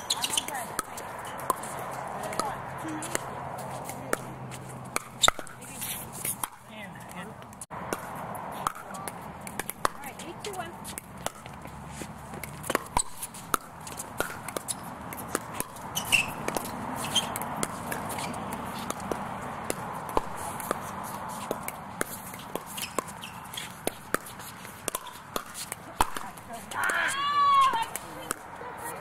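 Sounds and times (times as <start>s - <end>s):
shoes scuffing on hard court: 9.8s - 29.0s.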